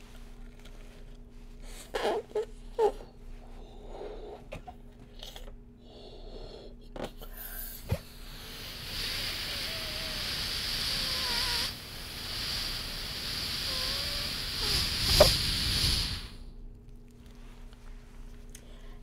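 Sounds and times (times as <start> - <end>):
air hissing out of balloon: 7.2 - 16.5.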